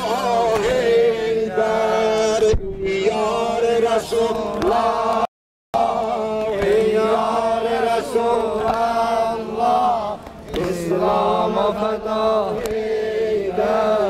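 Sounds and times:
voices chanting a hymn: 0:00.0 - 0:14.0.

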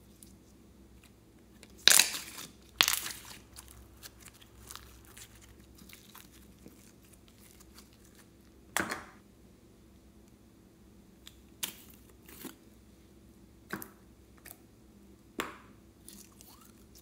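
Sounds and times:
slime sticky crackling: 0:01.6 - 0:08.4.

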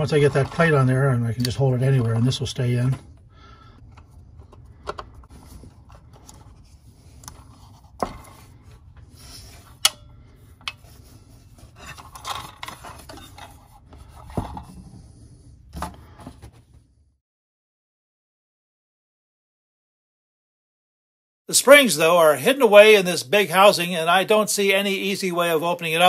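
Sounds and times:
metal parts scraping: 0:11.5 - 0:14.2.

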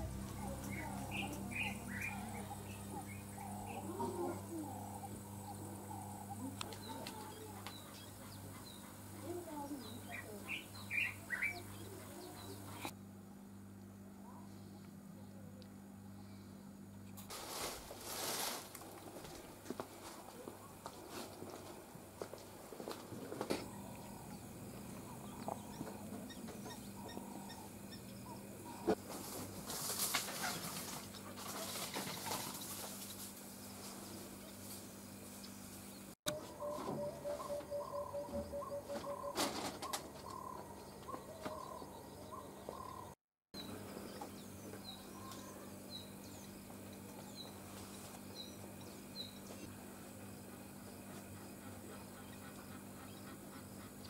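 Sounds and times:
birds chirping: 0:00.0 - 0:12.9, 0:23.5 - 0:29.0, 0:35.4 - 0:49.8
steady low hum: 0:00.0 - 0:54.0
small bird chirping: 0:00.3 - 0:12.9
faint longer bird calls: 0:36.3 - 0:43.2.

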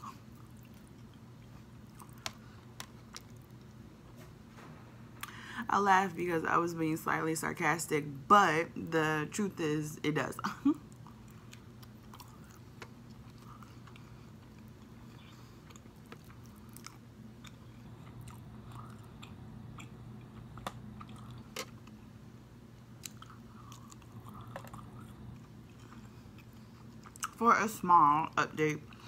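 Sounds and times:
chewing and crunching: 0:00.0 - 0:03.9, 0:10.8 - 0:22.1, 0:22.8 - 0:27.4
faint low hum: 0:00.0 - 0:29.0.

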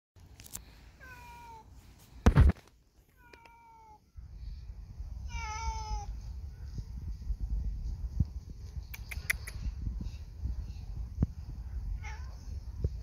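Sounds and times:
cat meowing: 0:05.2 - 0:06.1, 0:12.0 - 0:12.4.

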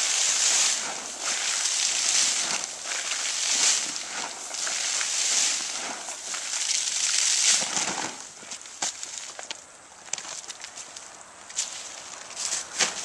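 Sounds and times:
corn kernels rattling onto dry leaves: 0:00.0 - 0:13.0.

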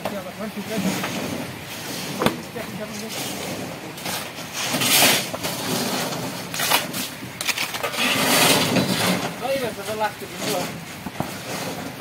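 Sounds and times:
shovels scraping wet gravel: 0:00.1 - 0:12.0.

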